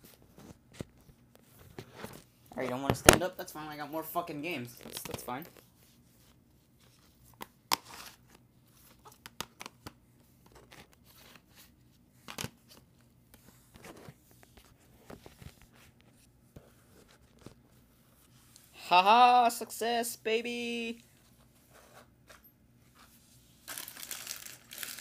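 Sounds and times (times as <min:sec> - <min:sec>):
objects being handled: 0:21.0 - 0:25.0.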